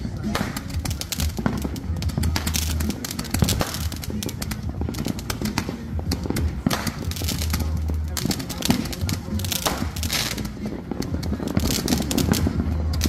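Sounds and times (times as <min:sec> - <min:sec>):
firework fountain spraying sparks: 0:00.0 - 0:13.0
fireworks popping and crackling: 0:00.0 - 0:13.0.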